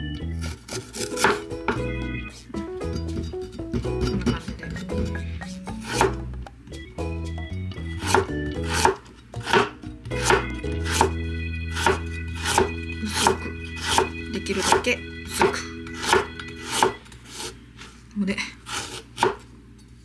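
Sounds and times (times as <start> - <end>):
knife chopping on wooden board: 0.4 - 1.8, 5.8 - 6.3, 8.0 - 11.2, 11.8 - 17.5, 18.7 - 19.4.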